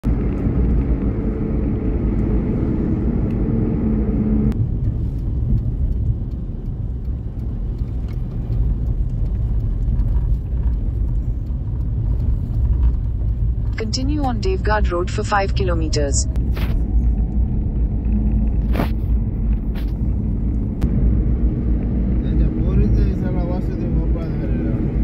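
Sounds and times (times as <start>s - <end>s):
loud droning hum: 0.0s - 4.6s, 13.6s - 25.0s
car driving on highway: 0.0s - 25.0s
road and engine rumble: 0.0s - 25.0s.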